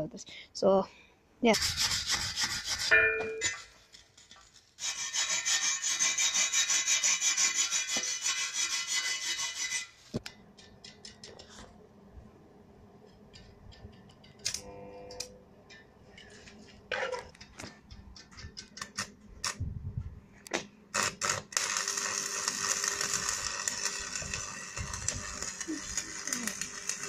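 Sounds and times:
welding arc crackling: 20.9s - 27.0s.

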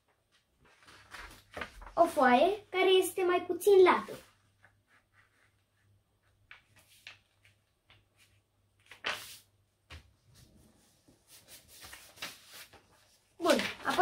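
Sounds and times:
paper rustling and creasing: 0.3s - 2.4s, 6.2s - 14.0s
paper swish: 8.9s - 9.5s.

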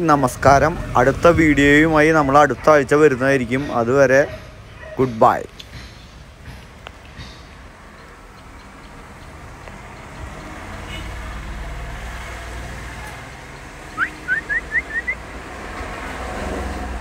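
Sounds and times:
motor vehicle rumble: 0.0s - 17.0s
short rising chirps: 14.0s - 15.2s.

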